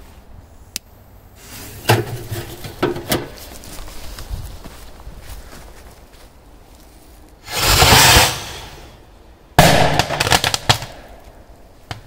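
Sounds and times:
rushing blast: 0:07.4 - 0:10.0
firecracker bang: 0:07.5 - 0:09.0, 0:09.6 - 0:11.0.

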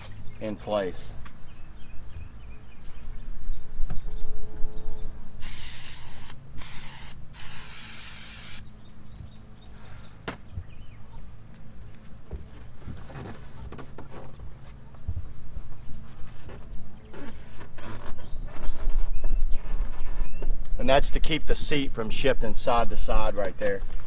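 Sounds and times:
hissing spray: 0:05.4 - 0:08.6
squeaky rub: 0:16.0 - 0:20.4.

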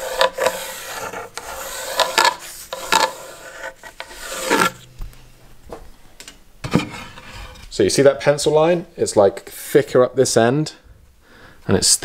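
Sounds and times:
pencil scratching on wood: 0:00.0 - 0:04.8.

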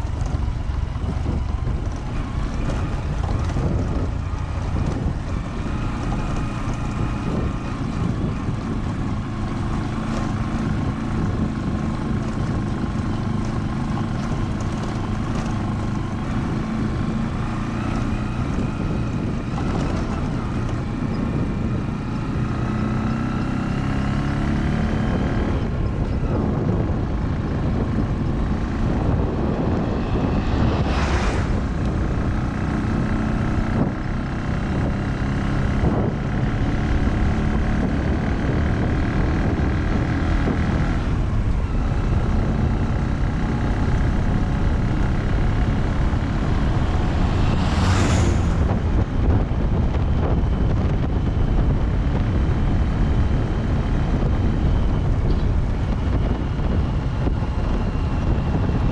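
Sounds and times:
road and wind noise: 0:00.0 - 0:58.9
vehicle engine running: 0:00.0 - 0:58.9
short whooshes: 0:29.2 - 0:32.6, 0:46.4 - 0:49.4.

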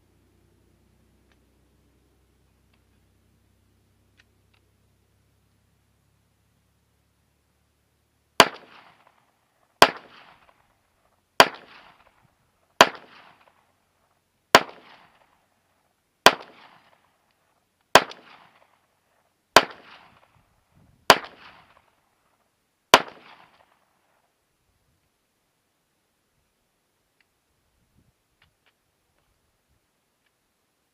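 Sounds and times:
pistol shots with echo: 0:08.4 - 0:09.2, 0:09.8 - 0:10.6, 0:11.4 - 0:12.1, 0:12.8 - 0:13.6, 0:14.5 - 0:15.3, 0:16.2 - 0:17.0, 0:17.9 - 0:18.7, 0:19.6 - 0:20.3, 0:21.1 - 0:21.8, 0:22.9 - 0:23.8.

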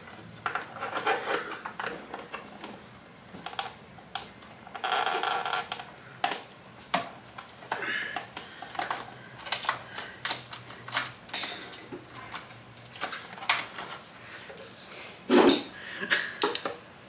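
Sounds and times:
hands working plastic and metal parts: 0:00.0 - 0:14.7.

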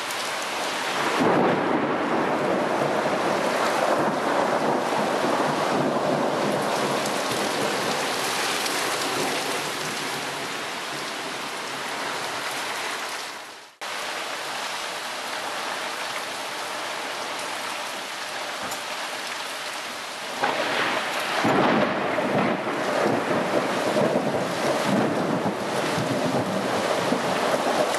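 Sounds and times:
thunder rumbling: 0:00.0 - 0:11.0, 0:20.3 - 0:27.9
heavy rain on paving and grass: 0:00.0 - 0:27.9.

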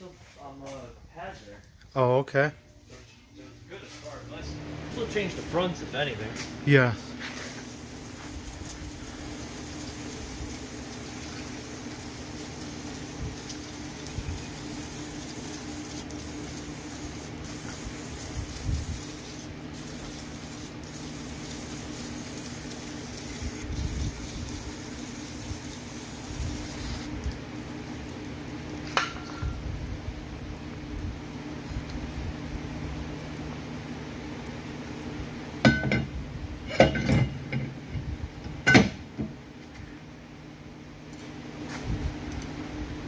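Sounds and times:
steady low hum: 0:00.0 - 0:43.0
aerosol spray can hissing: 0:14.4 - 0:27.1.

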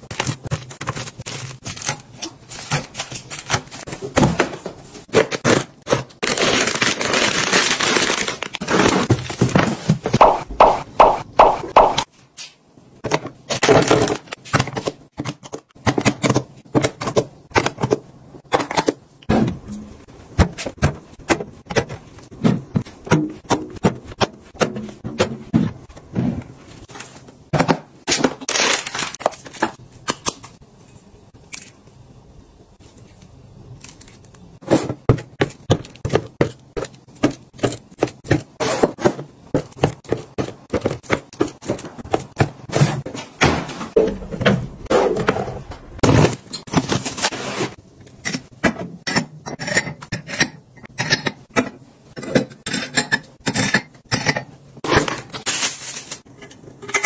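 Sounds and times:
plastic containers clicking and scraping: 0:00.0 - 0:10.2.

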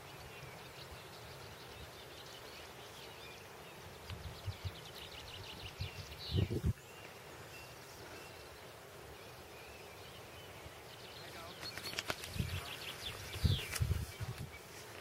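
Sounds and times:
small birds chirping: 0:00.0 - 0:15.0
wind rumble on microphone: 0:04.1 - 0:04.8, 0:05.7 - 0:06.8, 0:12.2 - 0:14.6.

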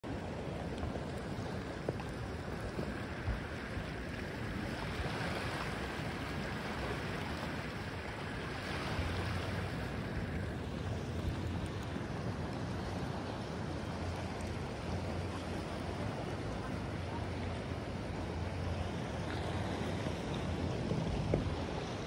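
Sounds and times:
sea water washing: 0:00.0 - 0:22.0
wind rumbling on microphone: 0:00.0 - 0:22.0.

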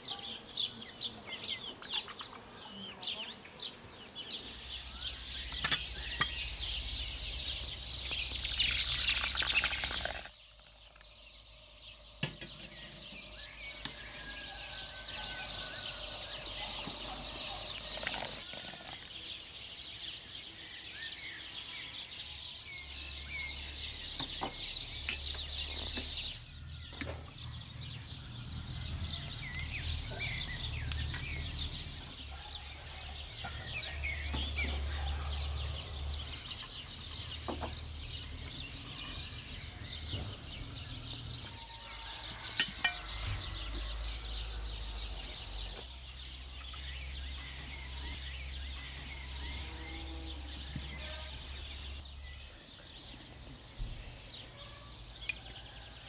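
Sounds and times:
birds chirping and calling: 0:00.0 - 0:56.0.

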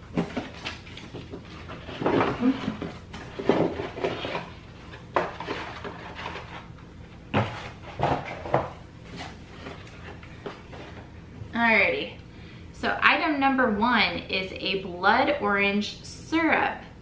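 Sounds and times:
cardboard rustling and scraping: 0:00.0 - 0:11.1.

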